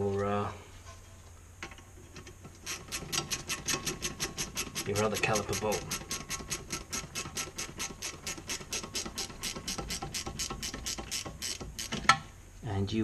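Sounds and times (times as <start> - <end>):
ratchet wrench clicking: 2.6 - 12.0.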